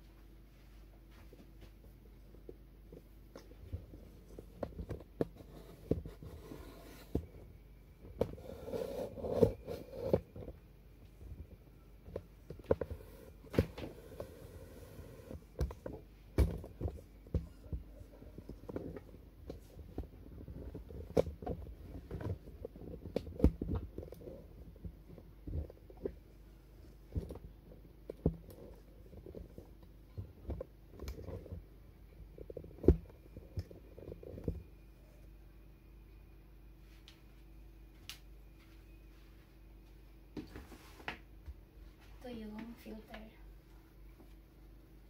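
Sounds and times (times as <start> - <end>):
faint steady hum: 0.0 - 45.0
rumbling handling noise: 1.2 - 35.2.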